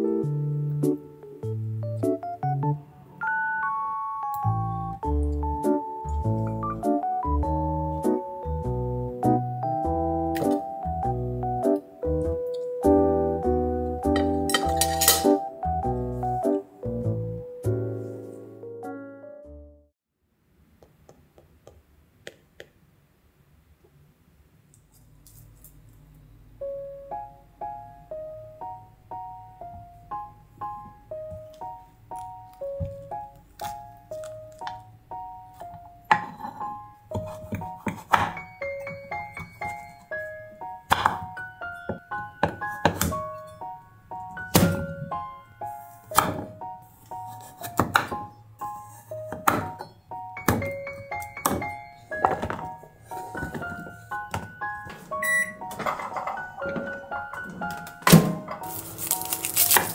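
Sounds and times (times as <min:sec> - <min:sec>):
background music: 0:00.0 - 0:19.9, 0:26.5 - 0:59.9
light piano melody: 0:00.0 - 0:19.9, 0:26.1 - 0:59.9
light background music with chimes: 0:14.0 - 0:18.2, 0:38.4 - 0:46.2, 0:49.8 - 0:59.8
knife chopping on wooden board: 0:37.1 - 0:38.4, 0:40.9 - 0:41.4, 0:47.3 - 0:48.2, 0:49.3 - 0:49.8.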